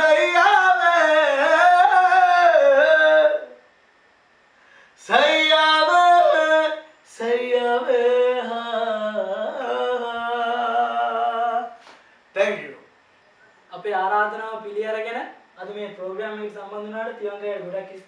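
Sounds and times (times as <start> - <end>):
man singing unaccompanied: 0.0 - 3.7, 5.0 - 11.8, 15.6 - 18.0.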